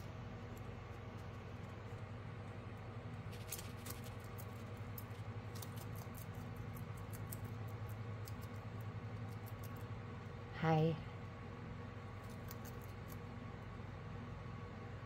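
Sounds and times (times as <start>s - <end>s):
steady low hum: 0.0s - 15.0s
lizard chewing greens: 3.2s - 9.9s, 12.1s - 13.3s.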